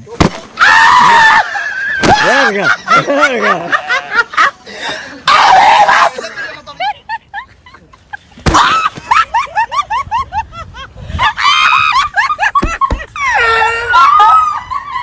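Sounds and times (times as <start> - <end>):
people laughing: 0.9 - 15.0
long drawn-out yell: 5.2 - 6.3, 13.2 - 15.0
sharp thumps: 12.5 - 13.1
high-pitched scream: 13.2 - 15.0.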